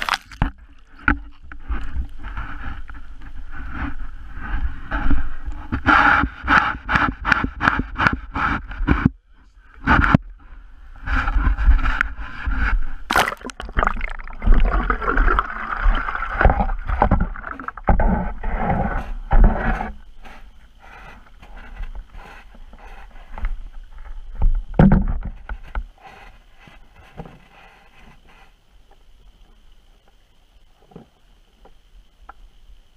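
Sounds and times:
muffled water sloshing: 0:11.2 - 0:20.8.

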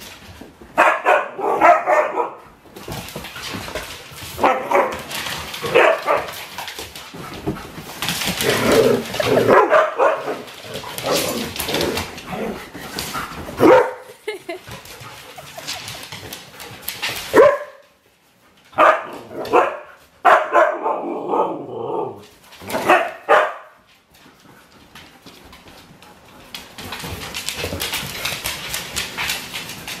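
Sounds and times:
dogs barking: 0:00.8 - 0:02.4, 0:04.4 - 0:06.4, 0:09.4 - 0:10.5, 0:13.6 - 0:14.1, 0:17.3 - 0:17.8, 0:18.8 - 0:22.1, 0:22.7 - 0:23.7
claws scrabbling on wooden floor: 0:24.8 - 0:30.0.

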